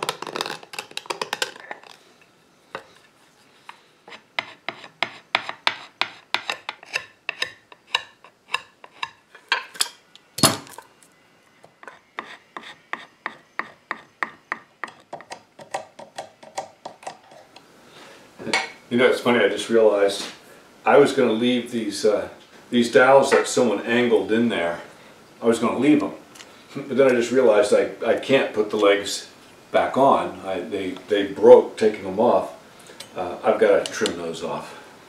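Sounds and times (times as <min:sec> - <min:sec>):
blade scraping wood: 0:02.8 - 0:09.2, 0:11.8 - 0:14.1.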